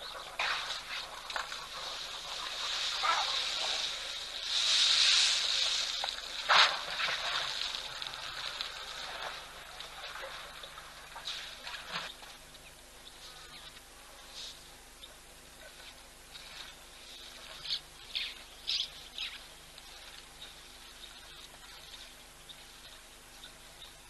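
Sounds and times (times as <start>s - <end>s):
water splashing and sloshing: 0.1s - 12.6s.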